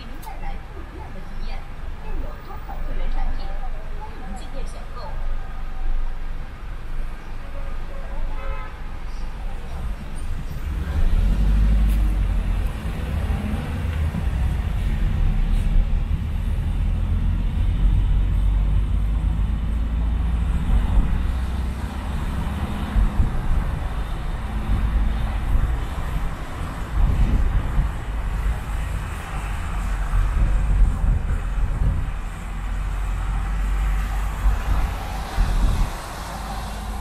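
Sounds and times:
car engine and tyre rumble: 0.0 - 37.0
surrounding traffic: 0.0 - 37.0
tyres hissing on wet road: 27.6 - 37.0.

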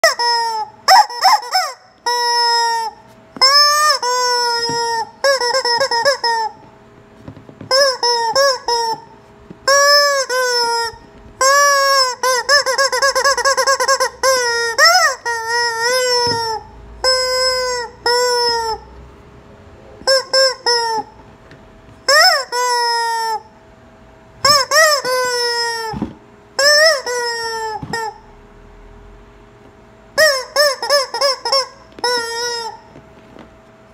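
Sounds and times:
rubber chicken toy squawking: 0.0 - 6.7, 7.7 - 18.9, 20.0 - 21.2, 22.0 - 23.5, 24.4 - 28.2, 30.2 - 32.9.

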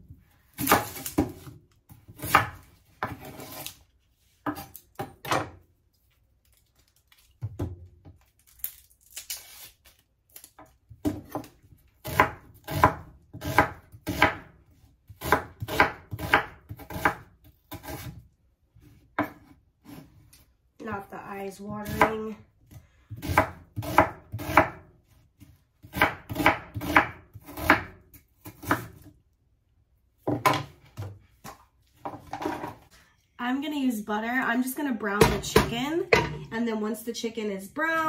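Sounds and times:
knife chopping on cutting board: 0.6 - 3.7, 19.2 - 20.0, 25.4 - 29.1.

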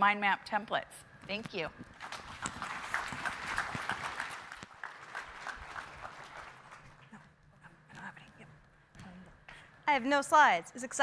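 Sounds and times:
audience applauding: 2.0 - 7.2.

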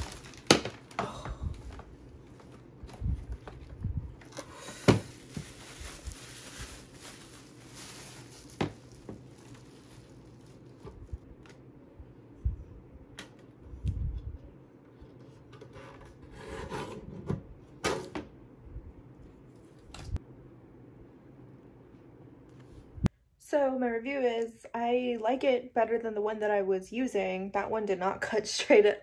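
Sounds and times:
plastic wrap rustling: 0.0 - 11.3.

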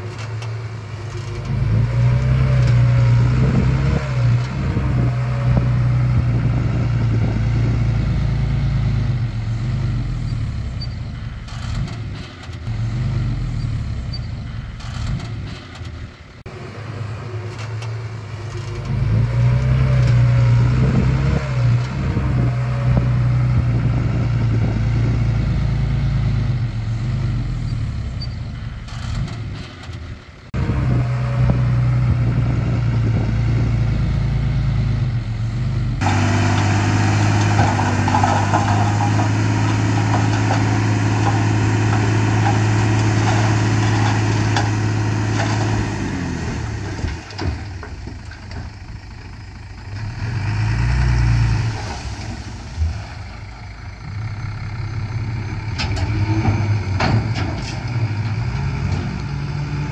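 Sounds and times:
diesel machinery engines running: 0.0 - 59.9.

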